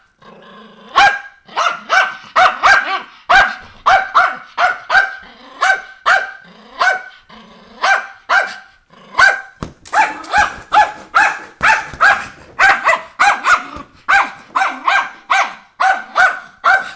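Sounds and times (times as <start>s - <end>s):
dog barking: 0.9s - 7.2s, 7.8s - 16.9s.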